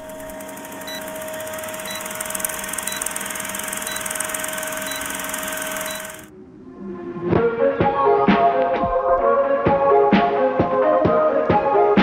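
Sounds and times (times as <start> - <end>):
held tone: 0.0 - 6.3
machine hum and hiss: 0.0 - 6.3.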